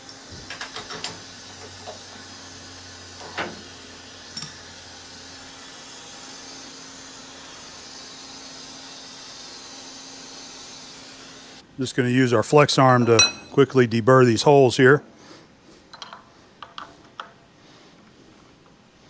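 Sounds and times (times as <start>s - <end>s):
machine hum with hiss: 0.0s - 11.8s.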